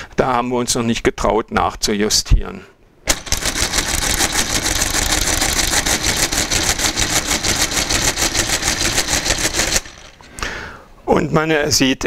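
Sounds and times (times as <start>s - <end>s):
mechanical calculator clattering: 3.1s - 10.3s.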